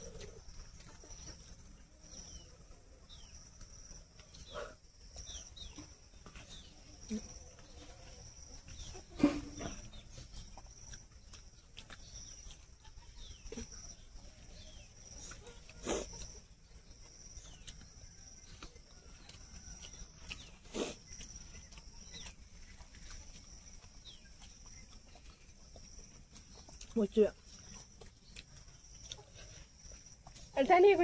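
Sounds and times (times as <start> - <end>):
birds chirping: 0.0 - 31.0.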